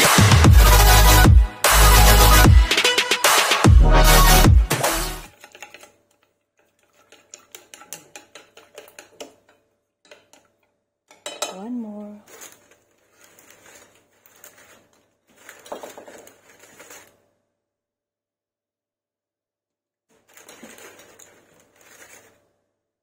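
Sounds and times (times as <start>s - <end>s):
cutlery clinking against dishes: 11.1s - 11.7s.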